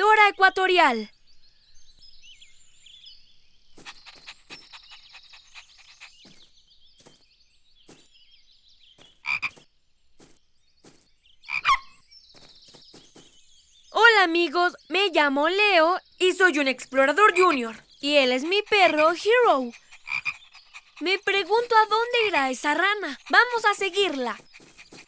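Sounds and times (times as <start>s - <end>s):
faint bird chirping: 0.0s - 25.0s
cartoon frog croaking: 9.2s - 9.6s, 11.5s - 11.9s, 18.5s - 21.4s.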